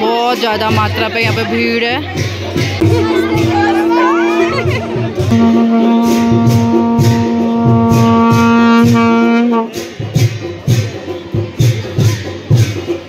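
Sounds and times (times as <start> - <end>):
steady drum beat: 0.0 - 13.0
horns blowing long note: 2.8 - 9.8.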